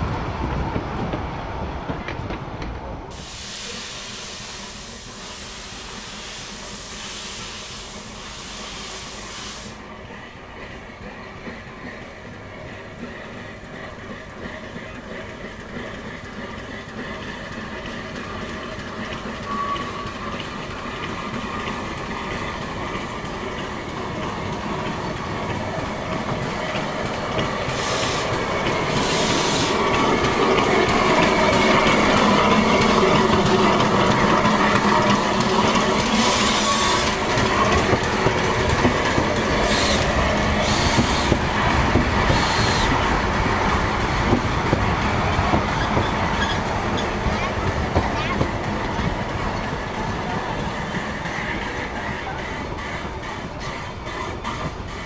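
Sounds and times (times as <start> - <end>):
steam locomotive running past: 0.0 - 55.0
steam hiss: 3.1 - 10.0, 25.5 - 33.0, 34.6 - 43.2.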